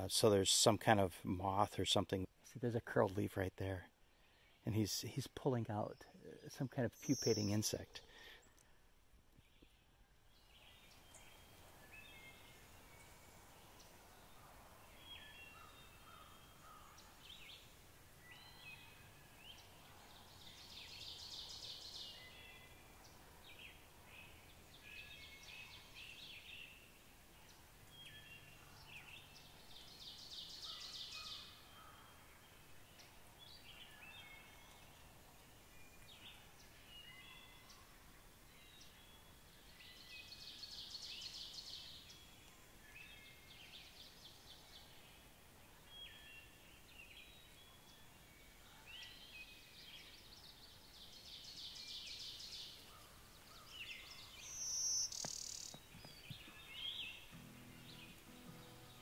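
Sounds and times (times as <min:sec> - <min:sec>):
bird chirps and calls: 0:05.7 - 0:08.6, 0:48.8 - 0:59.0
buzzy pulsed birdsong: 0:56.4 - 0:59.0.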